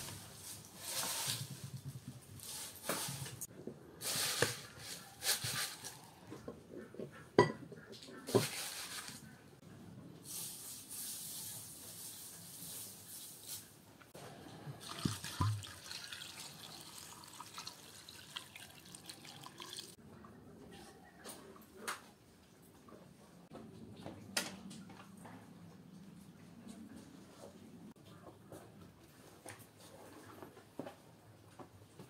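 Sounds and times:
dry onion skins rustling: 4.0s - 6.2s, 8.3s - 9.4s
water pouring into a pot: 14.8s - 20.0s.

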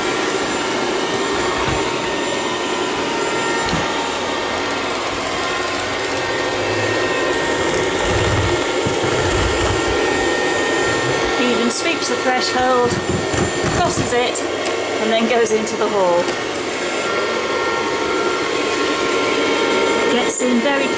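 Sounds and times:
robot vacuum cleaner whirring: 0.0s - 20.9s
low bumps: 7.7s - 11.5s.

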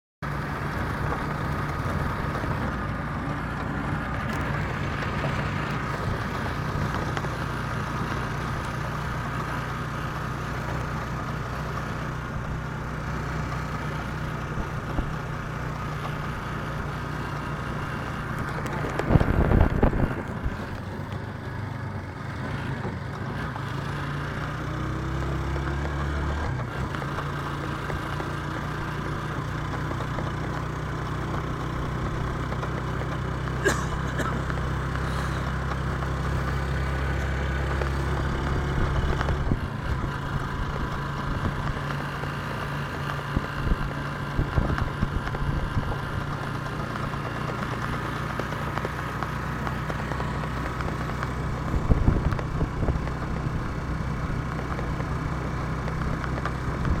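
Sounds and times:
road noise: 0.2s - 57.0s
vehicle engine running: 0.2s - 57.0s
louder rumble: 17.4s - 21.2s.

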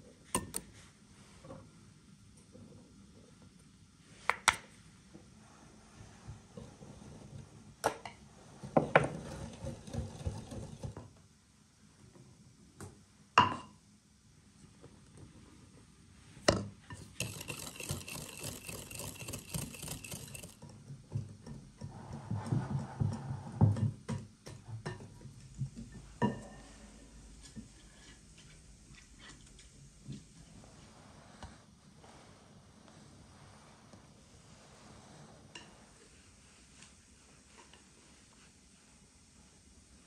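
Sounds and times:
whisk clinking against glass: 0.4s - 0.6s, 16.9s - 20.6s
whisk stirring batter: 16.9s - 20.7s.

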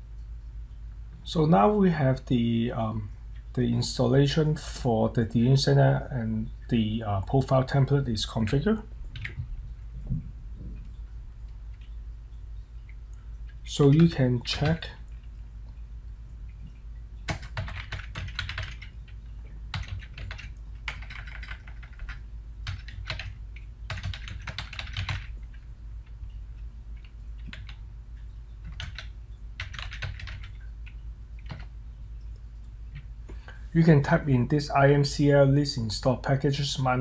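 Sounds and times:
low steady hum: 0.0s - 37.0s
computer keyboard typing: 9.1s - 9.4s, 17.3s - 19.1s, 19.7s - 26.2s, 27.0s - 27.8s, 28.6s - 31.7s.

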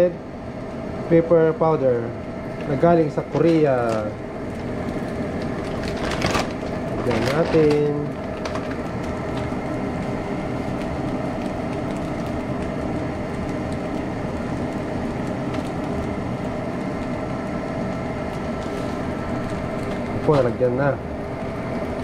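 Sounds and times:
constant hum: 0.0s - 22.0s
rice sizzling in a frying pan: 6.5s - 22.0s.

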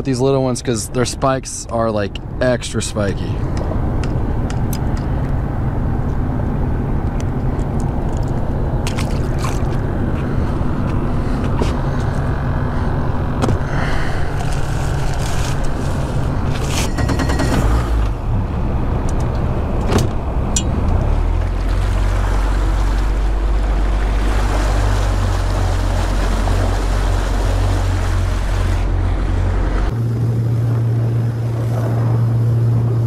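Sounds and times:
gear clicks and knocks on boat: 3.5s - 5.4s, 19.0s - 21.7s.

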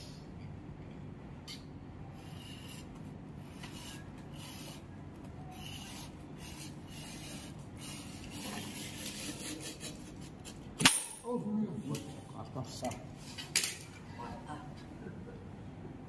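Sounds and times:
carpet scraping against metal strip: 2.2s - 10.6s.

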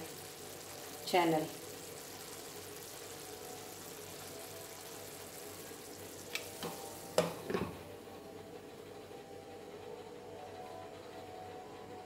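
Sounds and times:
curry sizzling in a pan: 0.0s - 7.8s
spoon knocking against pan: 6.6s - 7.8s.

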